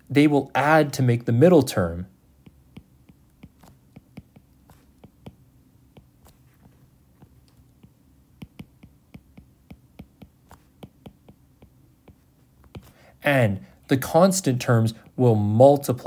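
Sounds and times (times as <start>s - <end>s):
stylus tapping on glass screen: 2.4s - 13.0s.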